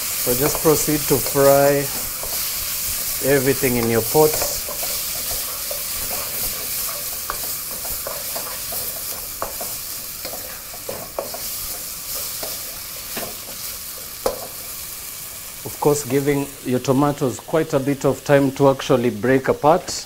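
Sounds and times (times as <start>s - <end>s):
onions frying in a pot: 0.0s - 20.0s
wooden spoon scraping a pot: 0.4s - 13.6s.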